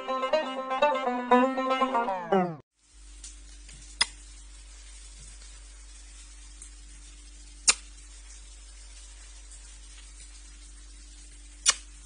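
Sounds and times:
room hum and hiss: 2.8s - 12.0s.

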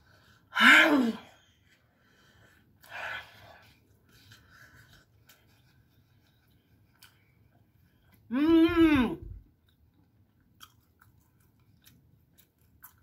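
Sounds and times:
chewing sounds: 9.6s - 13.0s.

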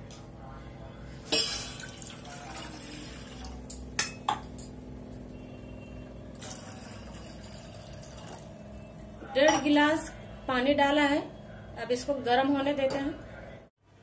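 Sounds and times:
water pouring into metal pot: 1.4s - 3.7s, 6.4s - 8.5s.

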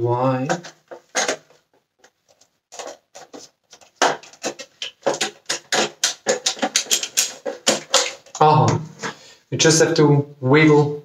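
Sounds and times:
hard plastic parts clicking and clattering: 2.8s - 8.4s.

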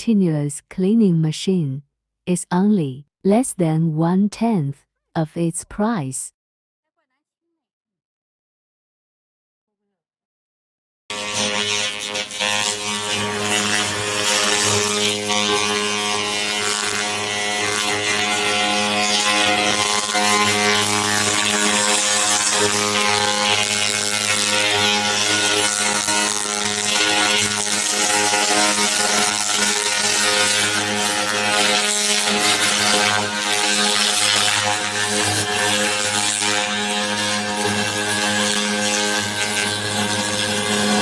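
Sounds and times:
laser cleaning machine buzzing hum: 11.1s - 41.0s.

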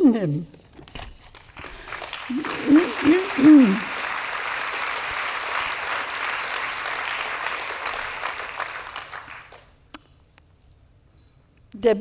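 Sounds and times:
audience applauding: 1.6s - 9.7s.

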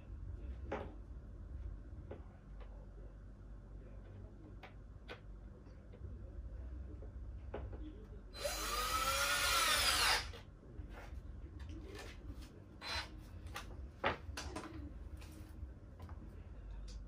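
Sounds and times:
cordless drill whining: 8.4s - 10.4s, 12.8s - 13.1s.

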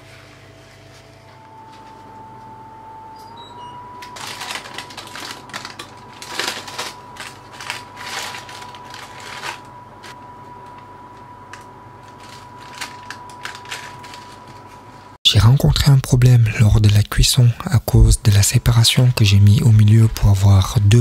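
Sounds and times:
parchment paper crinkling: 4.1s - 10.2s, 12.0s - 14.8s.

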